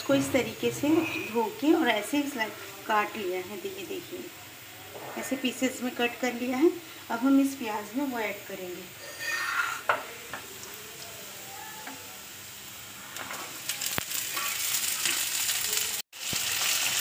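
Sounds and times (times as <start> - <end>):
vegetables sizzling in oil: 0.0 - 17.0.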